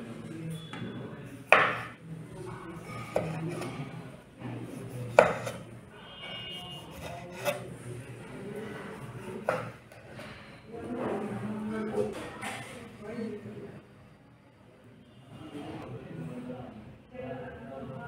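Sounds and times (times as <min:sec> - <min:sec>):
knife knocking cutting board: 0:01.5 - 0:01.9, 0:05.1 - 0:05.6, 0:09.4 - 0:09.8
knife slicing vegetable: 0:04.7 - 0:05.6, 0:06.9 - 0:07.6.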